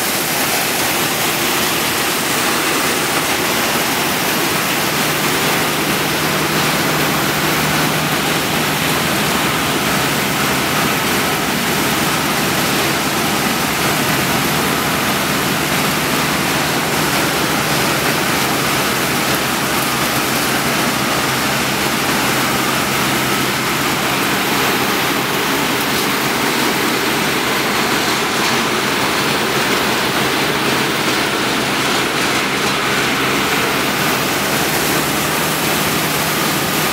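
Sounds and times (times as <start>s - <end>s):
water rushing and machine noise: 0.0s - 36.9s.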